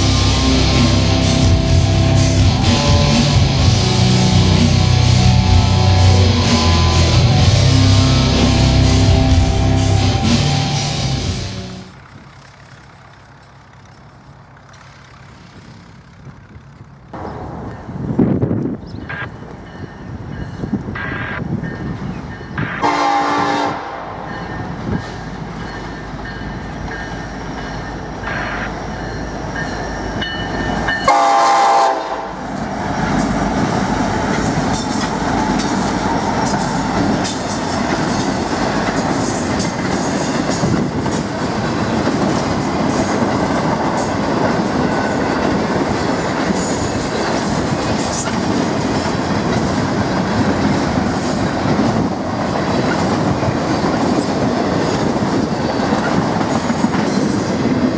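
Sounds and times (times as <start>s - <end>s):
train horn: 0.0s - 11.9s, 22.6s - 24.3s, 30.9s - 32.4s
diesel locomotives rumbling: 0.0s - 57.9s
train wheels clattering on rails: 24.2s - 57.9s.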